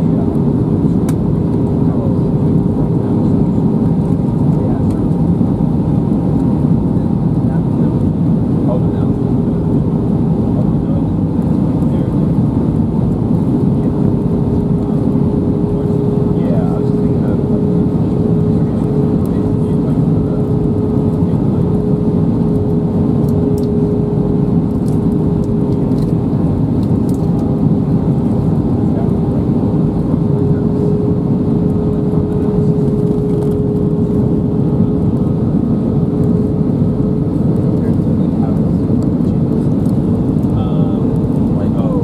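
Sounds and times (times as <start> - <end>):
aircraft engines roaring: 0.0 - 42.0.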